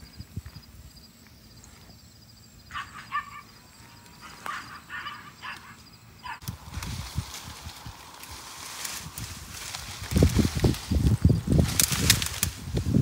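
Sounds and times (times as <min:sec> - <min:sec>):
short animal calls: 0:02.7 - 0:06.5
leafy branches rustling: 0:02.7 - 0:13.0.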